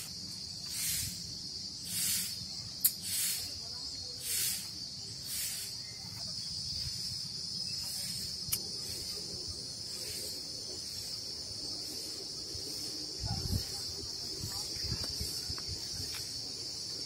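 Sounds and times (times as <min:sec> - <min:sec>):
high-pitched insect chorus: 0:00.0 - 0:17.0
sharp click: 0:02.8 - 0:03.0, 0:08.5 - 0:08.7.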